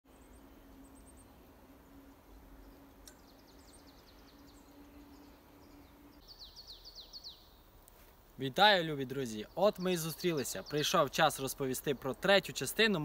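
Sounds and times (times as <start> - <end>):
faint steady hum: 0.1 - 6.6
bird chirping: 0.1 - 7.8, 8.9 - 12.6.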